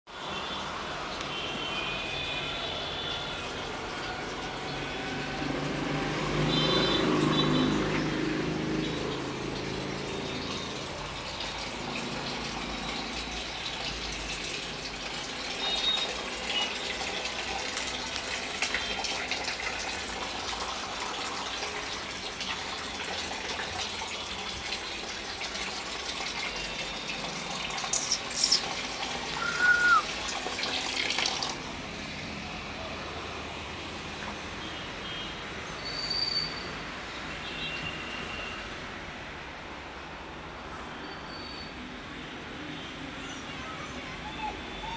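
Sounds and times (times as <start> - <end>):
running water rushing: 2.9 - 34.6
brief high squeak: 27.9 - 28.7, 29.4 - 30.0, 35.8 - 36.8, 40.8 - 41.8.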